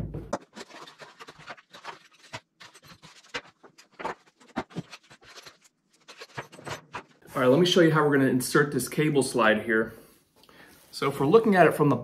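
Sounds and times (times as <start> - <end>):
handling cardboard box and plastic: 0.0 - 7.3.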